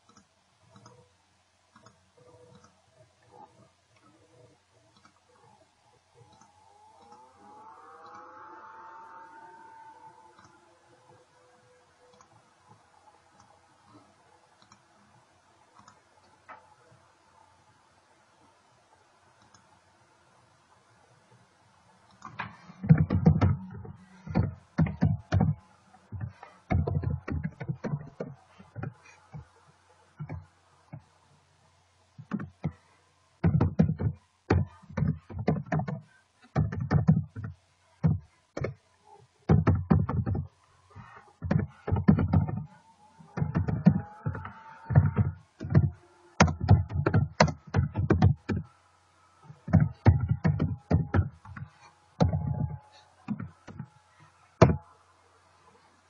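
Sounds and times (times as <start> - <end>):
computer keyboard typing: 22.2 - 29.4, 43.4 - 48.7.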